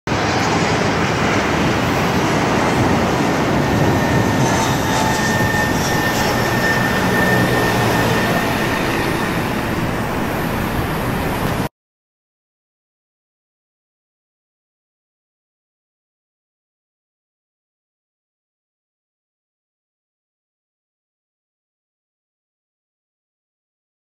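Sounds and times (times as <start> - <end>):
jet engines roaring at takeoff: 0.1 - 11.7
faint high whine: 0.2 - 11.7.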